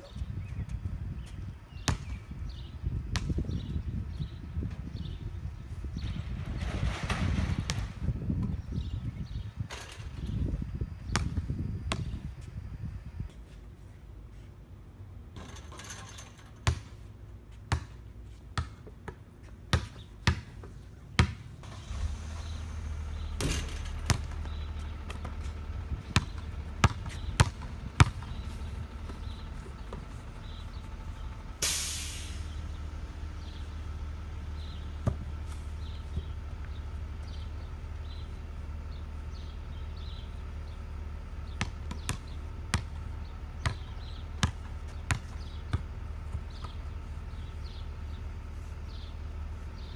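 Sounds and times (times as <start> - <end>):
basketball bouncing on asphalt: 0.8 - 4.4, 6.9 - 10.4, 11.0 - 12.5, 15.4 - 21.7, 23.3 - 30.8, 34.6 - 37.4, 41.4 - 48.2.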